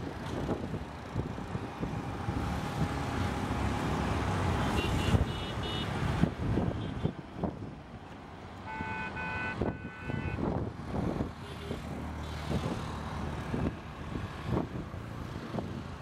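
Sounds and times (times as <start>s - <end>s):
wind noise: 0.0s - 8.1s, 8.8s - 16.0s
low rumble of traffic: 0.0s - 16.0s
multi-tone horn honking: 8.7s - 10.4s.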